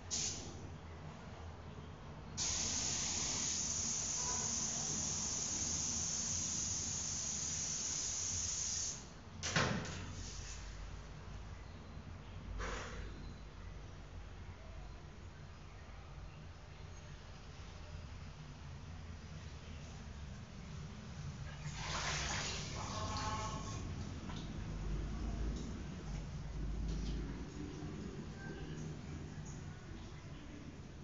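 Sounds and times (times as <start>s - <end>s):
short sharp spray bursts: 0.1s - 0.5s, 2.4s - 9.1s
spray hissing: 2.4s - 9.0s.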